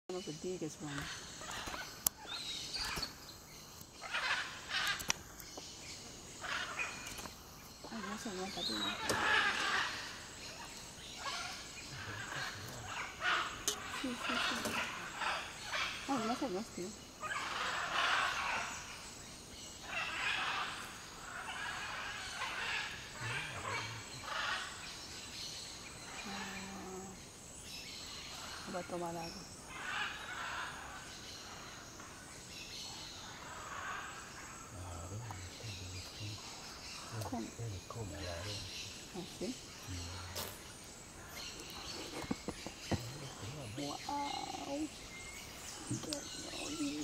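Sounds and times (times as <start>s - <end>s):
insects buzzing: 0.1s - 47.0s
rustles in undergrowth: 39.0s - 47.0s.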